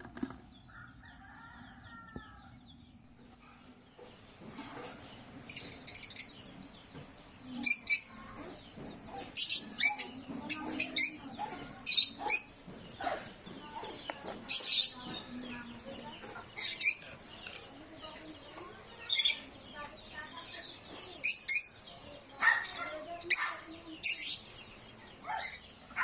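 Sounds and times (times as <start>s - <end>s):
lovebirds giving shrill calls: 7.6s - 8.2s, 9.4s - 13.3s, 21.2s - 21.8s.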